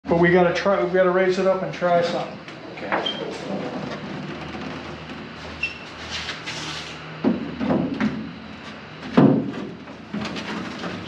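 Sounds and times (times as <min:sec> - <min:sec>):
metal bonnet scraping: 0:03.0 - 0:07.0.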